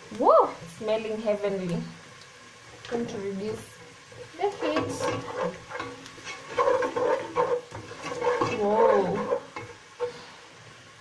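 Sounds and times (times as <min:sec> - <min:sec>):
woman exclaiming: 0:00.2 - 0:00.6
wooden spoon stirring in a pot: 0:02.2 - 0:10.8.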